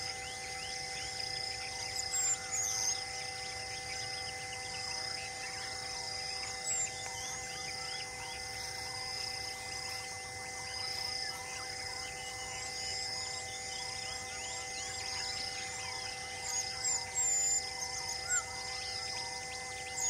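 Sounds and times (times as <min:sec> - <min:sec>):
insect buzz: 0:00.0 - 0:20.0
insects trilling: 0:00.0 - 0:20.0
small birds chirping: 0:00.0 - 0:20.0.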